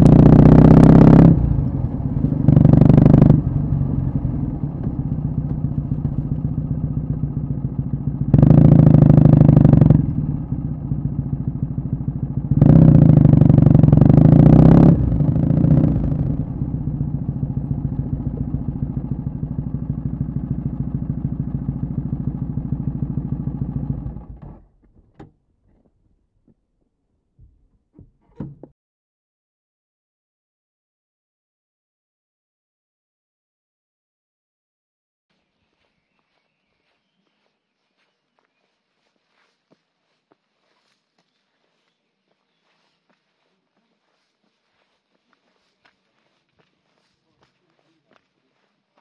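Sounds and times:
motorcycle engine revving and idling: 0:00.0 - 0:25.3.

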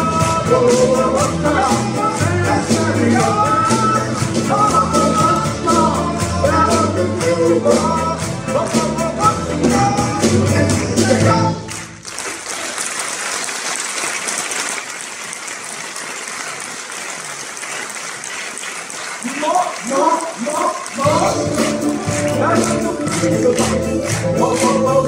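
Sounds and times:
live band playing: 0:00.0 - 0:12.4, 0:20.0 - 0:25.0
audience applauding: 0:00.1 - 0:25.0.

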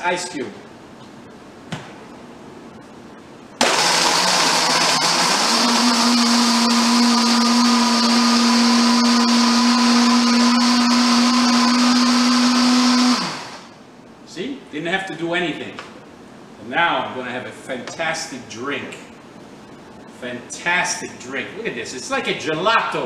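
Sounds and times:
blender crushing ice: 0:03.6 - 0:13.7.

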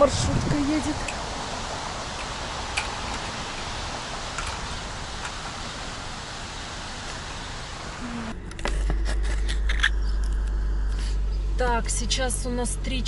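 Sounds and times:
waterfall rushing and splashing: 0:00.0 - 0:08.4.

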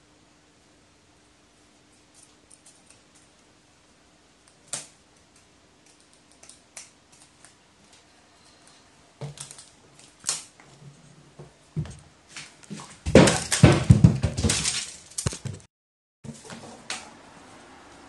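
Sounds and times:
dull thumps: 0:12.7 - 0:14.8.

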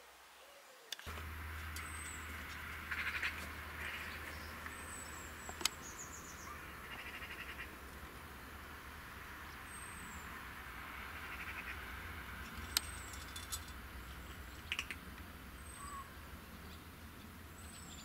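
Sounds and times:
small birds calling: 0:00.4 - 0:18.0
steady low rumble: 0:01.1 - 0:18.0
bird rattling trills: 0:01.3 - 0:07.7, 0:12.5 - 0:15.0.

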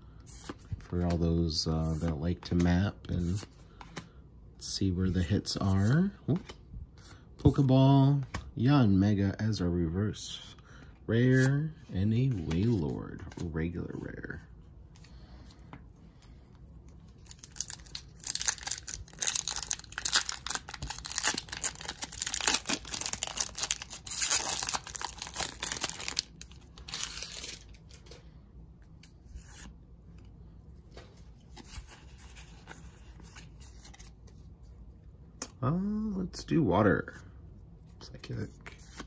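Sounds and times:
cards rustling: 0:00.2 - 0:04.2, 0:10.8 - 0:34.8
foil wrapper tearing and crinkling: 0:17.3 - 0:27.8.

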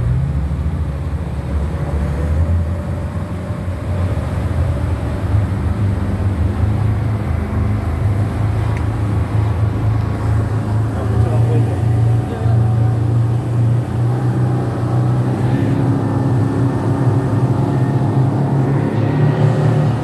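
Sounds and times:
speedboat engine drone: 0:00.0 - 0:20.0
rush of wind and water: 0:01.5 - 0:20.0.

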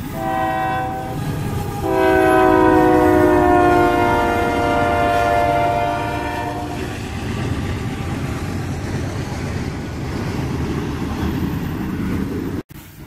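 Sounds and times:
locomotive air horn: 0:00.0 - 0:07.0
freight cars rumbling on rails: 0:00.0 - 0:13.0.

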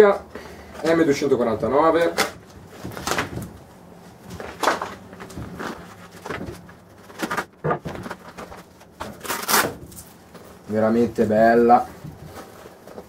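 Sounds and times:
plastic bag crinkling and tearing: 0:06.8 - 0:13.0.

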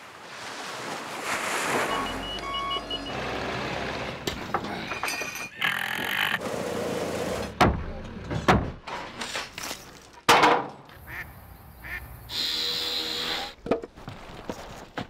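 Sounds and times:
ducks quacking: 0:10.9 - 0:12.2.

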